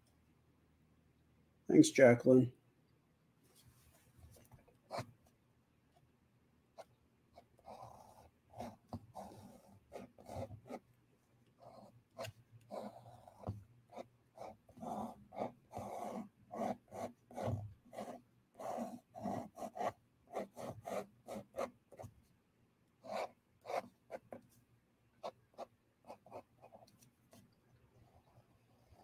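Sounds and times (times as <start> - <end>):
pen strokes on paper: 6.8 - 10.8, 11.6 - 22.2, 23.0 - 24.6.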